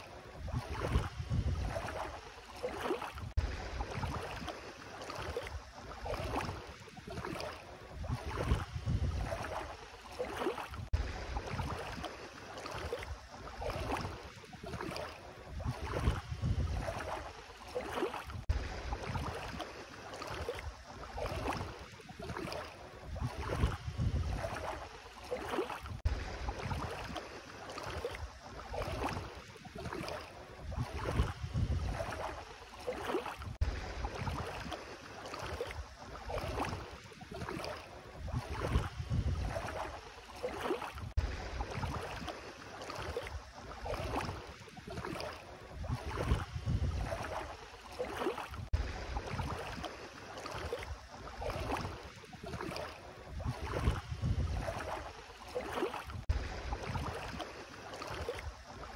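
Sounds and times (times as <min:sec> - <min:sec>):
feet splashing through water: 0:00.0 - 0:58.9
wind rumble on microphone: 0:00.2 - 0:02.2, 0:03.1 - 0:04.5, 0:05.3 - 0:09.7, 0:10.7 - 0:12.0, 0:14.8 - 0:17.3, 0:18.2 - 0:19.6, 0:20.6 - 0:24.9, 0:25.8 - 0:27.2, 0:28.2 - 0:32.4, 0:33.4 - 0:34.7, 0:35.8 - 0:40.0, 0:40.9 - 0:42.3, 0:43.3 - 0:47.6, 0:48.5 - 0:49.8, 0:50.9 - 0:55.1, 0:56.0 - 0:57.4.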